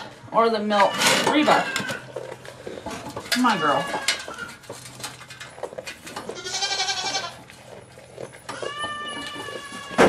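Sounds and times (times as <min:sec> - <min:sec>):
goat bleating: 0:06.2 - 0:07.6, 0:08.4 - 0:10.0.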